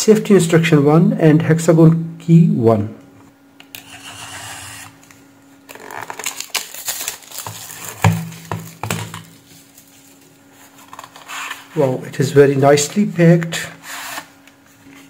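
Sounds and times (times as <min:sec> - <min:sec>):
knife slitting plastic wrap: 0:05.7 - 0:10.0
plastic film crinkling: 0:05.7 - 0:11.8.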